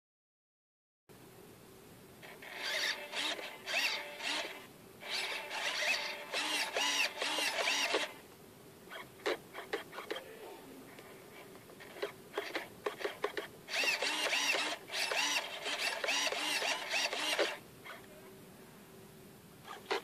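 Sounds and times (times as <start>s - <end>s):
servos whirring: 2.2s - 8.2s, 11.8s - 18.0s.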